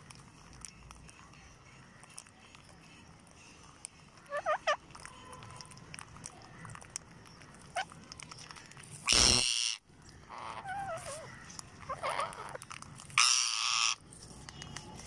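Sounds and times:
parakeet wavering chatter: 0:04.2 - 0:04.9, 0:09.0 - 0:12.6, 0:13.2 - 0:14.0
parakeet harsh screeches: 0:09.0 - 0:12.6, 0:13.2 - 0:14.0.

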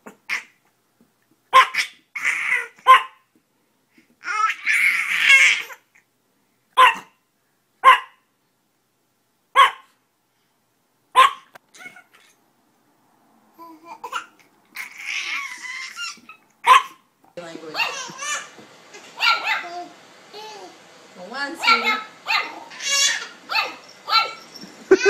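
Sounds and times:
small dog yapping: 0:01.5 - 0:03.2, 0:06.8 - 0:07.2, 0:07.8 - 0:08.2, 0:09.6 - 0:09.9, 0:11.2 - 0:12.4, 0:14.7 - 0:17.0, 0:17.8 - 0:19.9, 0:21.6 - 0:25.0
baby babbling and laughing: 0:01.6 - 0:02.8, 0:04.2 - 0:05.9, 0:11.7 - 0:12.4, 0:13.6 - 0:16.5.

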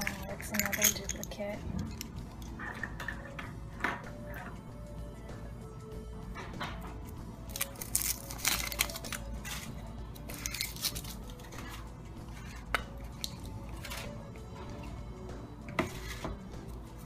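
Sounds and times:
foil wrapper crinkling: 0:07.5 - 0:09.7, 0:10.3 - 0:11.5
chocolate shell cracking: 0:07.5 - 0:11.5.

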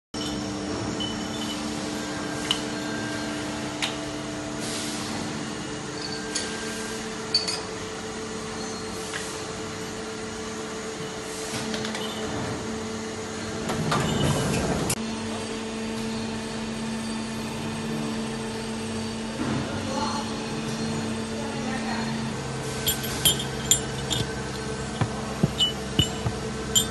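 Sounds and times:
machining centre humming: 0:00.2 - 0:08.7, 0:09.6 - 0:26.9
metallic clicks and clinks: 0:22.8 - 0:26.9.

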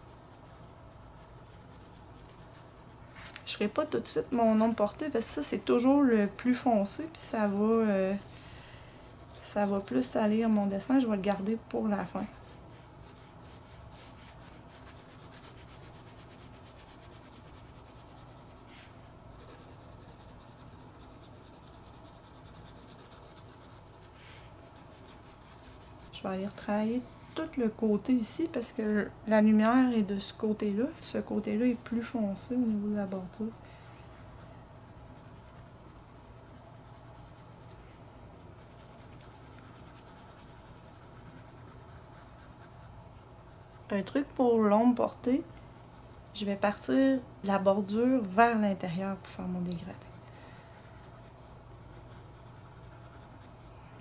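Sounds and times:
pencil rubbing on paper: 0:00.0 - 0:03.0, 0:03.8 - 0:08.2, 0:09.0 - 0:11.2, 0:12.0 - 0:24.2, 0:24.8 - 0:26.2, 0:31.9 - 0:37.8, 0:38.4 - 0:43.9, 0:45.7 - 0:46.2, 0:49.9 - 0:53.6
low steady hum: 0:00.0 - 0:54.0.

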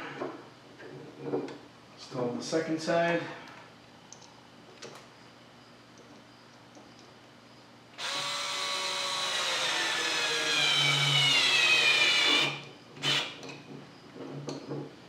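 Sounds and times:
cordless drill driving screw: 0:08.0 - 0:13.4.

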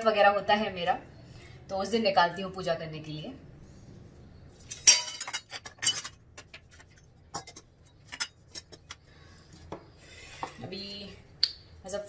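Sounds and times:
metal vessels clinking: 0:04.7 - 0:08.9.

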